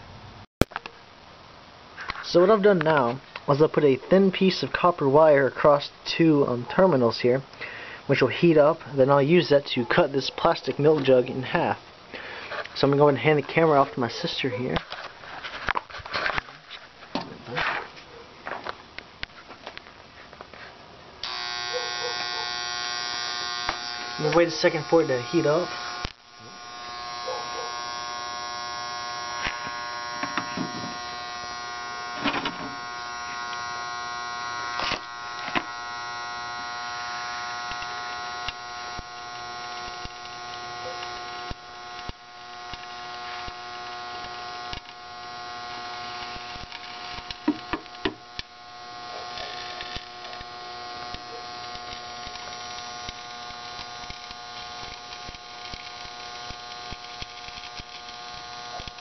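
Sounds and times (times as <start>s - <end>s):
transformer humming: 21.2s - 55.5s.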